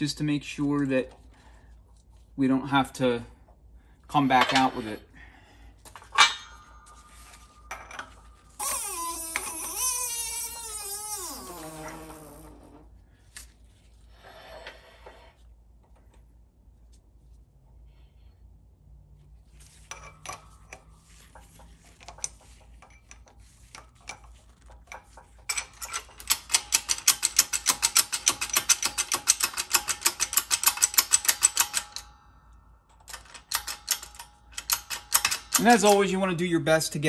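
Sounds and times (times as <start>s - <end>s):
metal tooling clicks and taps: 19.9s - 32.1s, 32.9s - 36.1s.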